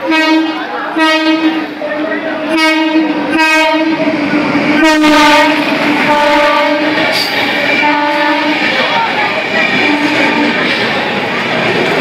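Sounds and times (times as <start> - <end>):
train horn blasts: 0.0 - 1.6, 2.5 - 4.0, 4.8 - 7.0, 7.8 - 8.6, 9.8 - 10.6.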